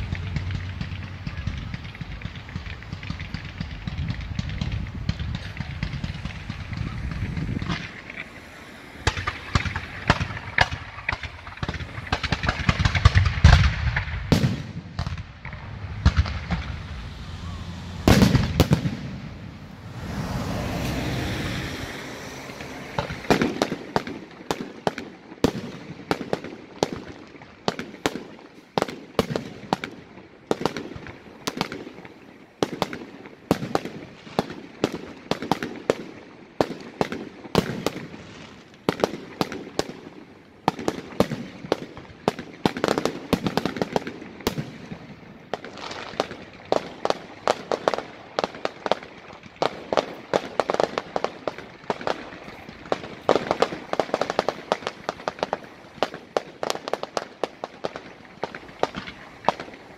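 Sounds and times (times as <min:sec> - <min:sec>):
firework shells bursting: 0:00.0 - 0:26.4
firework crackling: 0:00.0 - 0:59.9.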